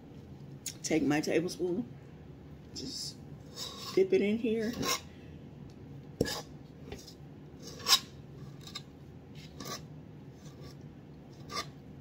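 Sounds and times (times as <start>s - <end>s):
spoon scraping metal bowl: 3.5s - 5.1s, 6.2s - 10.8s, 11.4s - 11.8s.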